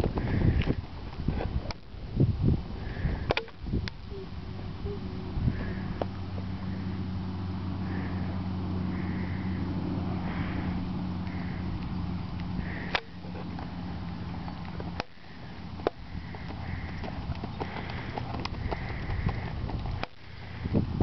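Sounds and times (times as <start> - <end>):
steady low hum: 0.0 - 21.0
horse hoofbeats on dirt: 12.7 - 20.0.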